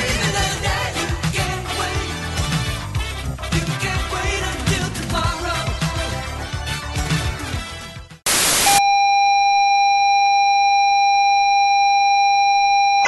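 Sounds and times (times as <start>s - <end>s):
music: 0.0s - 8.3s
loud white-noise static: 8.3s - 8.8s
steady electronic beep tone: 8.3s - 13.0s.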